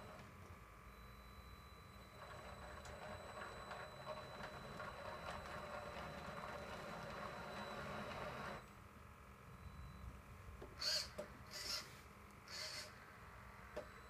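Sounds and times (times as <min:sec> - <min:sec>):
toy truck motor whirring: 0:10.8 - 0:13.0.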